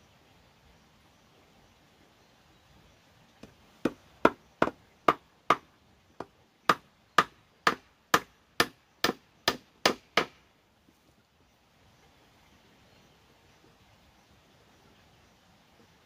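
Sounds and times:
hammer nailing wooden board: 3.8 - 5.6, 6.7 - 10.4.

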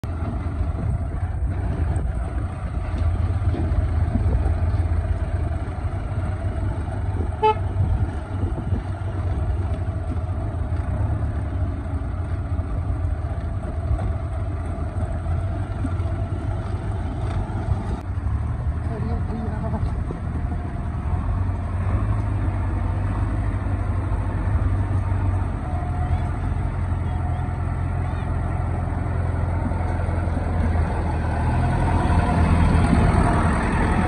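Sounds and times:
diesel engine rumbling: 0.0 - 34.0
horn toot: 7.3 - 7.8.

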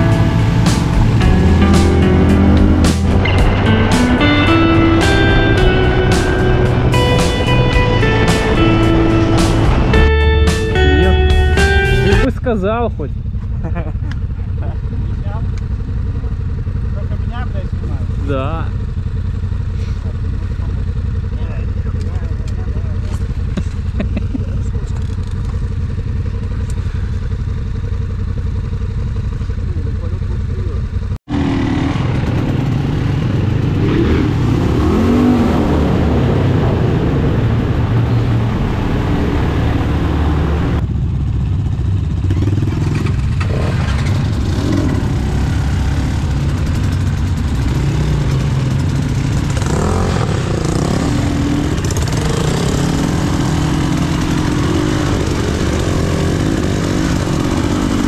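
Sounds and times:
dirt bike engine revving: 0.0 - 12.8, 31.3 - 40.8, 42.0 - 58.0.

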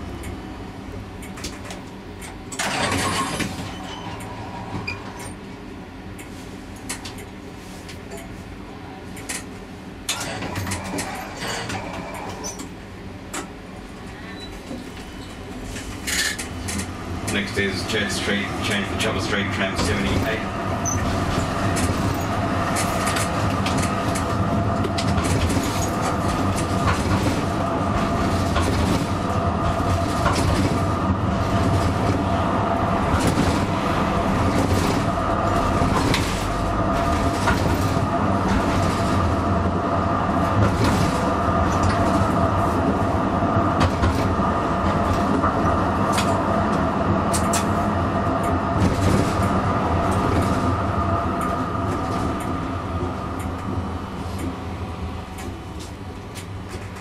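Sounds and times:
tram running hum: 0.0 - 57.0
wheels clicking on rails: 15.2 - 39.8, 43.6 - 52.6.

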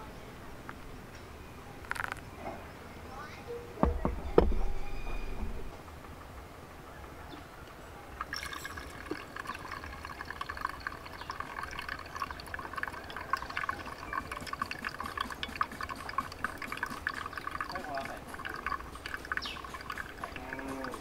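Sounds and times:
coffee dripping into glass: 8.2 - 21.0.

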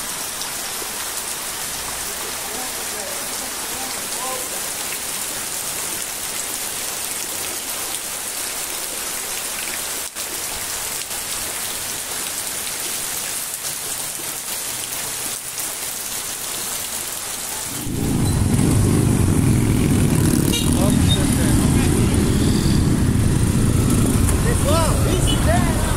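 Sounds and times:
heavy rain on water: 0.0 - 25.9
traffic engines rumbling: 17.6 - 25.9.

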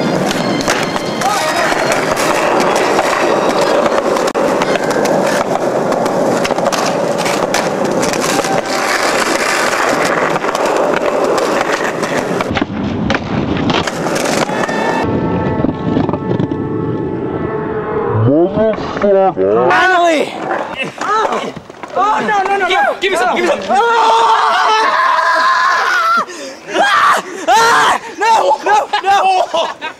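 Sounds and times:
skateboard clacking on ground: 0.0 - 15.1, 19.7 - 23.8
skateboard wheels rolling on concrete: 0.0 - 17.1, 18.6 - 29.9.

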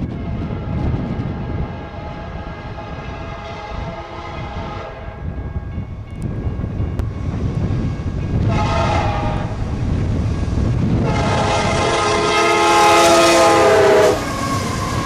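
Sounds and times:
wind buffeting microphone: 0.0 - 15.0
locomotive air horn: 1.4 - 5.2, 8.4 - 9.6, 11.0 - 15.0.

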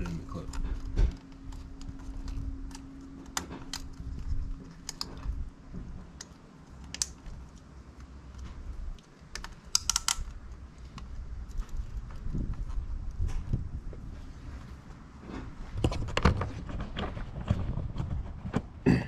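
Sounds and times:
plastic clicks and rattles: 0.0 - 5.4, 6.0 - 12.2.

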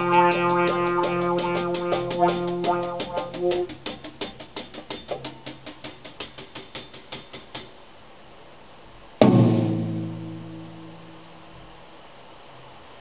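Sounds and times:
drum kit and darbuka playing: 0.0 - 7.8, 9.2 - 11.0
loud drum kit accent ringing: 0.0 - 7.8, 9.2 - 11.5.

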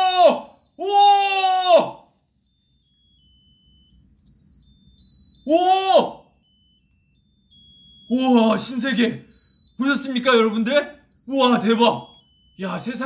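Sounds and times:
man exclaiming ooh: 0.0 - 2.0, 5.5 - 6.3
electronic buzzer playing tune: 0.0 - 13.0.

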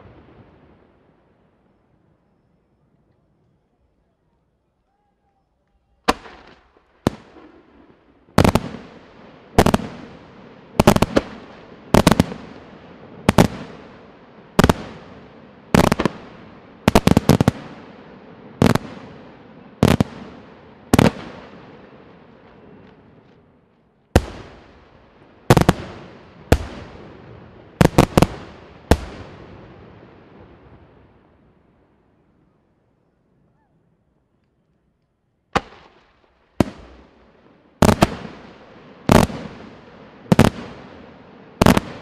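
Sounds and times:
fireworks bursting with bangs: 6.0 - 31.4, 35.5 - 42.0.

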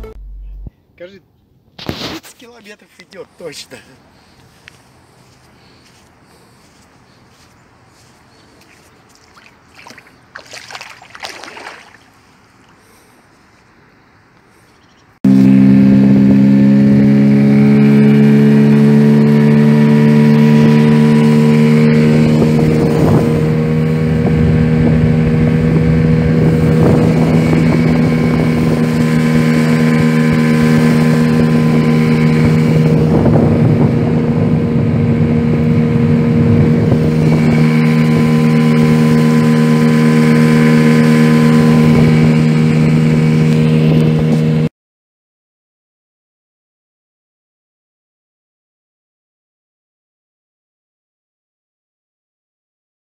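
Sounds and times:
outboard motor running: 3.4 - 13.2, 15.3 - 44.7
water rushing: 9.2 - 12.8
wind rush: 22.0 - 40.0, 40.6 - 44.5.

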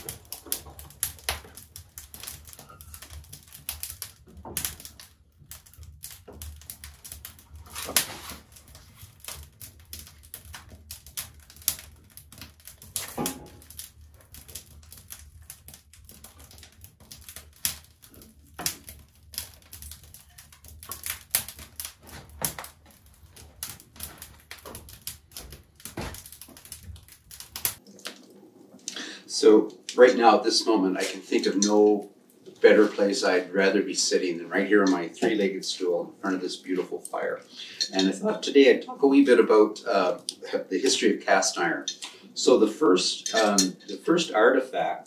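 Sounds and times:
kindling knocking onto fire: 0.0 - 28.2
wood fire crackling and popping: 0.0 - 45.0.

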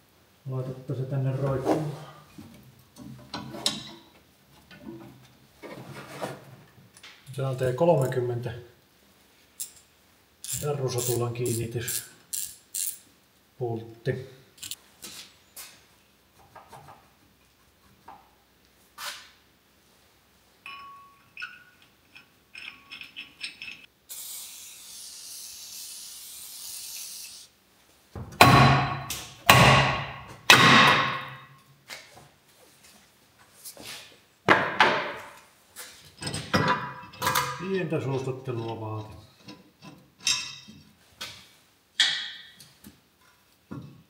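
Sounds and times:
hand tools clicking and rattling: 9.6 - 13.0, 14.6 - 14.8, 20.7 - 23.9.

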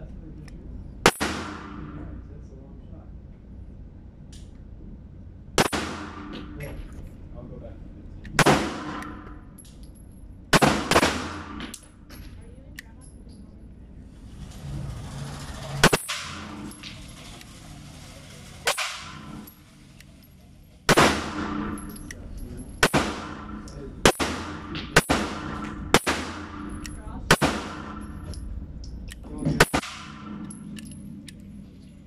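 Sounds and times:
pistol shots echoing indoors: 1.0 - 2.2, 5.6 - 6.6, 8.3 - 9.5, 10.5 - 11.9, 20.9 - 22.2, 22.8 - 28.4, 29.6 - 30.8.

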